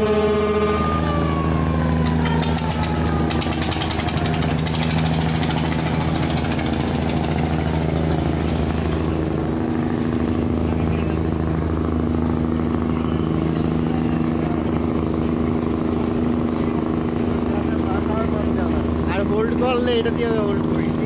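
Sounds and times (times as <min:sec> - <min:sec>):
boat diesel engines droning: 0:00.0 - 0:21.0
fast clatter of ticks: 0:02.0 - 0:08.4.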